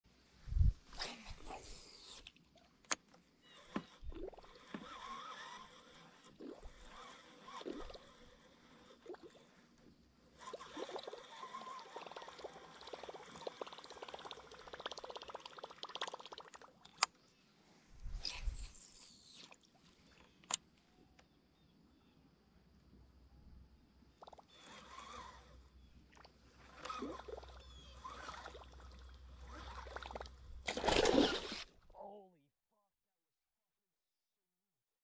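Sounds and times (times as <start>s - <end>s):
fishing reel whirring: 3.4s - 9.6s, 10.3s - 16.4s, 24.2s - 25.9s, 26.6s - 31.7s
water splashing and gurgling: 4.0s - 5.6s, 6.2s - 9.5s, 10.4s - 17.1s, 26.1s - 31.7s.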